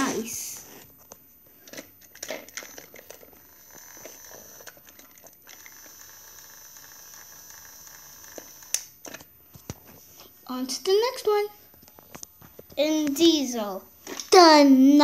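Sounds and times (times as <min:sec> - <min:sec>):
plastic toy clicks and rattles: 0:01.7 - 0:08.8
toy train motor whirring: 0:02.2 - 0:08.9.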